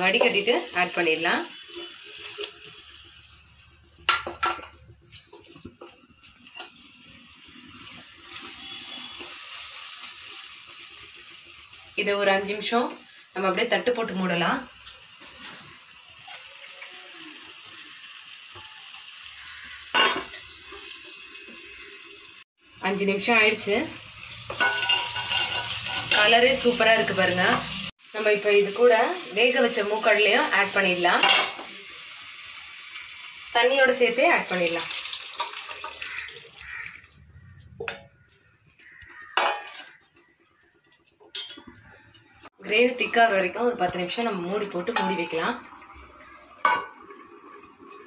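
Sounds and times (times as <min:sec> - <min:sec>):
masala sizzling in frying pan: 0:00.0 - 0:48.0
metal cookware clanks: 0:04.1 - 0:04.8, 0:19.9 - 0:20.5, 0:24.4 - 0:26.5, 0:31.1 - 0:31.7, 0:39.3 - 0:40.0, 0:41.3 - 0:41.8, 0:44.7 - 0:45.5, 0:46.6 - 0:47.0
chickpeas and water pouring into pan: 0:34.4 - 0:37.8.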